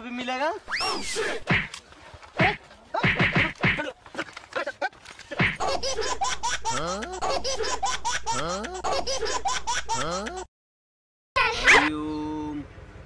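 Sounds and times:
high-pitched cackling laugh: 4.5 - 10.5.

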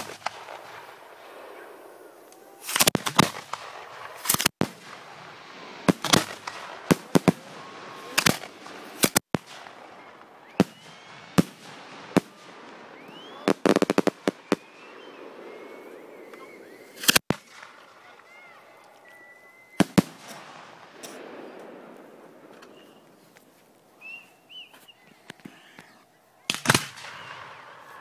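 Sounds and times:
firework shells bursting: 2.2 - 18.0, 19.8 - 23.1.

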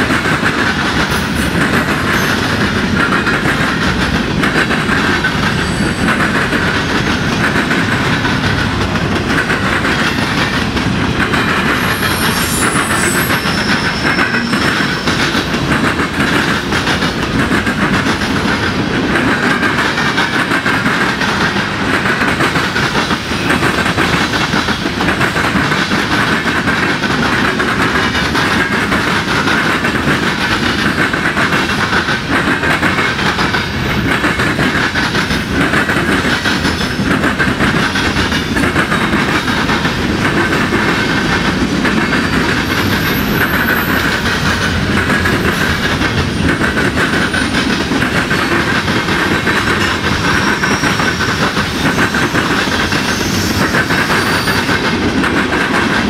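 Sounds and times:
train wheels clattering over rails: 0.0 - 56.0
high wheel squeal: 11.7 - 15.4, 50.2 - 54.8.

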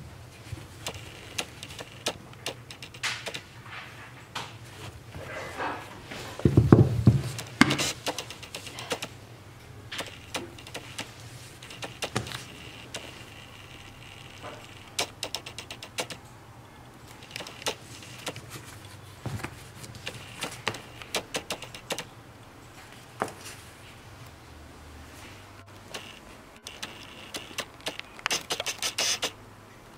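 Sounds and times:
steady low hum: 0.0 - 29.9
hands handling a sneaker: 17.6 - 20.9, 23.1 - 23.6.

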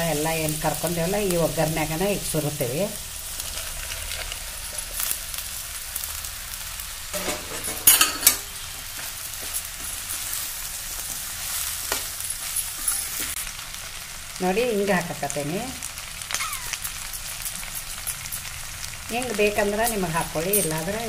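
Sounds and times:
vegetables sizzling in oil: 0.0 - 21.0
utensil clinking and scraping pan: 7.1 - 8.6, 11.9 - 13.4.

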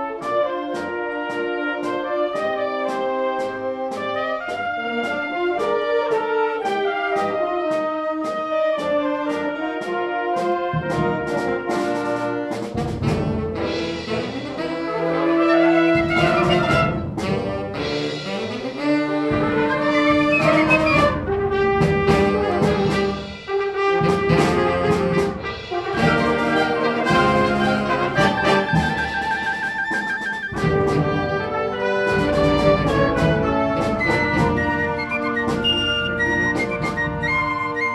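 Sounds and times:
concert band playing: 0.0 - 37.9
trumpets and trombones: 0.0 - 37.9
saxophones: 13.6 - 37.9.

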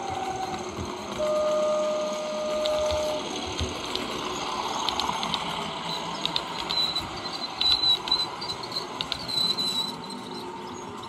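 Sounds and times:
model train running hiss: 0.0 - 11.0
model train wheels clicking: 0.0 - 11.0
thin high squeal: 5.8 - 11.0.

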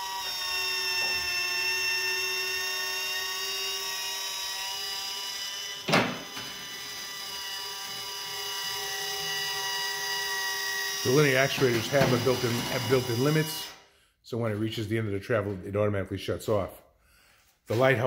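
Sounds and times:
actuator motor whining: 0.0 - 13.8.

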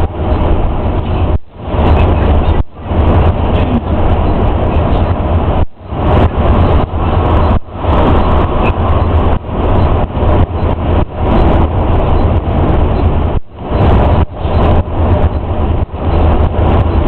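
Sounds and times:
coach engine and road rumble: 0.0 - 17.0.

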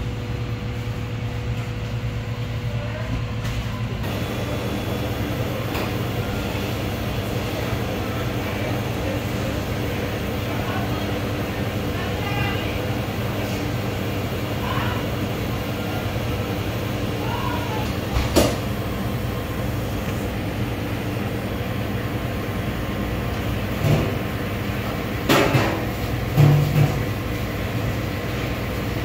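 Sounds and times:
machinery humming: 0.0 - 29.0.

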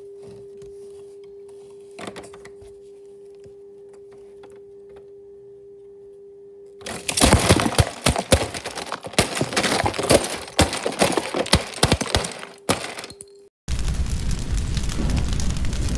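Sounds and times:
plastic bricks clattering: 6.8 - 13.3.

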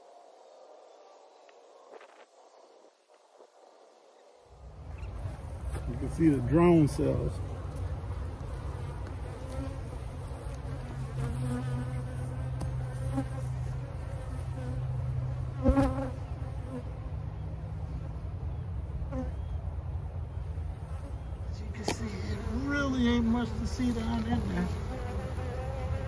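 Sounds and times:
bees buzzing: 4.6 - 18.0, 20.7 - 26.0
bee droning past: 4.6 - 18.3, 20.4 - 26.0.

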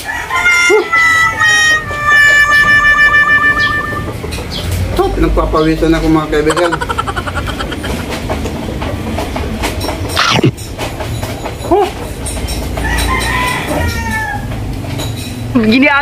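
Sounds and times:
chicken squawk: 0.0 - 4.3
chickens clucking: 0.0 - 10.6.

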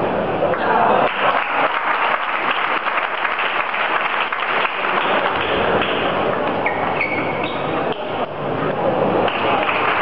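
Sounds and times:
crowd applauding: 0.5 - 6.6, 9.2 - 10.0.

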